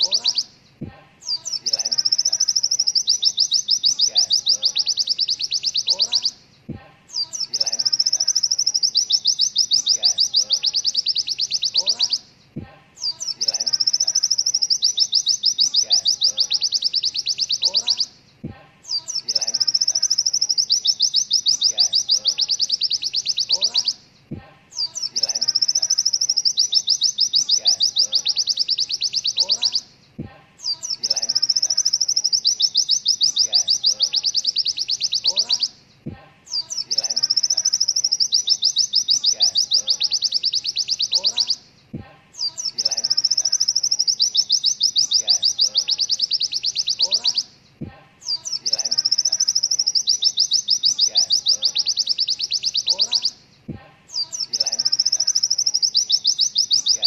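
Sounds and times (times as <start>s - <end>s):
bird high-pitched trilling rattles: 0.0s - 0.5s, 1.2s - 6.4s, 7.1s - 12.2s, 13.0s - 24.0s, 24.7s - 29.9s, 30.6s - 35.8s, 36.5s - 41.6s, 42.4s - 47.5s, 48.2s - 53.4s, 54.1s - 57.0s.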